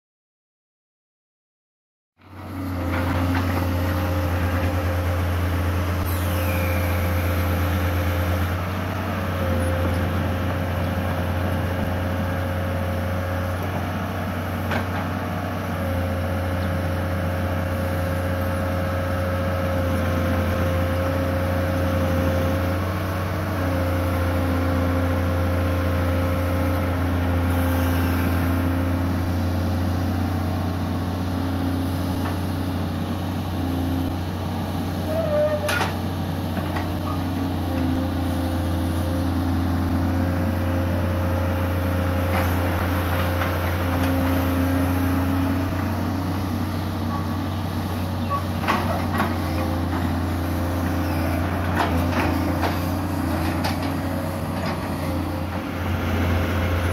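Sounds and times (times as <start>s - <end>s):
excavator diesel engine running: 2.2s - 56.9s
steady hydraulic whine: 2.9s - 10.8s, 26.7s - 29.7s.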